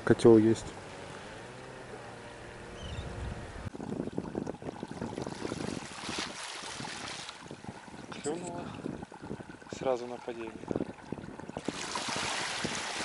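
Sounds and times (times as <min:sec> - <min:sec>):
wind buffeting microphone: 0:02.6 - 0:13.0
waves splashing against rocks: 0:11.6 - 0:13.0.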